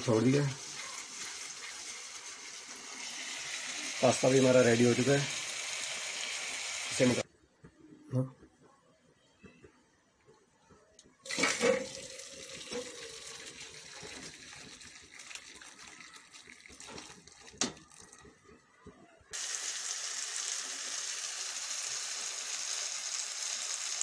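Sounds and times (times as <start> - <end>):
spices sizzling in oil: 0.0 - 7.2, 19.4 - 24.0
water splashing into strainer: 11.3 - 18.2.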